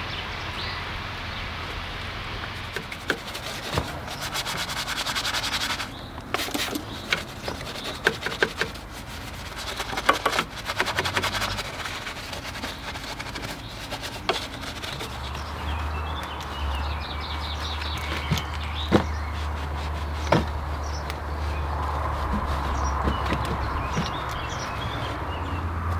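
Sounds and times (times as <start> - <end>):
brush scrubbing engine: 0.0 - 25.9
sharp clicks and knocks: 6.2 - 8.8, 9.8 - 11.6, 22.3 - 24.6.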